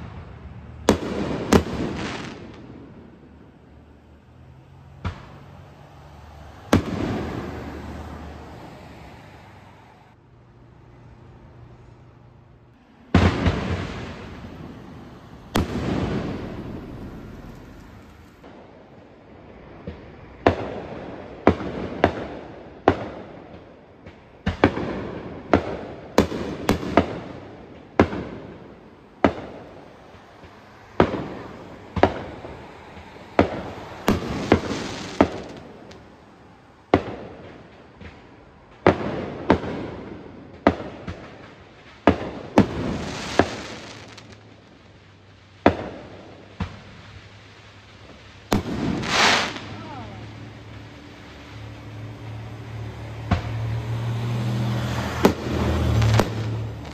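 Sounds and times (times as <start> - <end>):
fireworks bangs with echo: 0.0 - 4.2, 4.9 - 9.5, 12.8 - 56.9.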